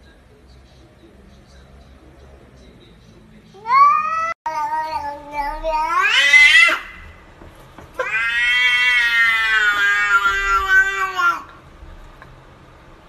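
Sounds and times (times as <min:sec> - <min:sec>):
cat meowing: 0:03.6 - 0:07.1, 0:08.0 - 0:11.6.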